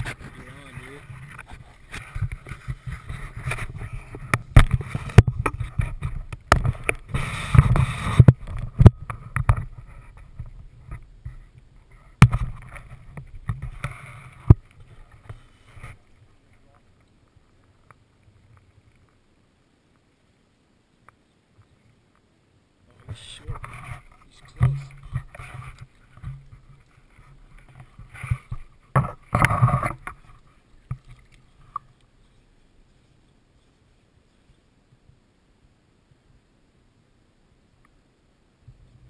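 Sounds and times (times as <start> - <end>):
rustling through dry brush: 0.0 - 35.8
camera handling knocks and scrapes: 1.1 - 11.4, 12.2 - 14.6, 23.5 - 31.8.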